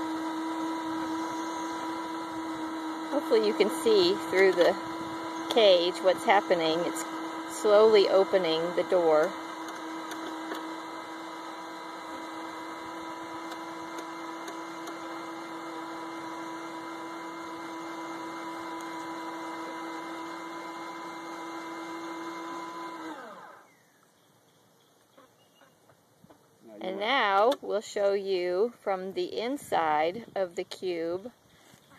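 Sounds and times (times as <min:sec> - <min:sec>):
electric screwdriver motor whine: 0:00.0 - 0:23.8.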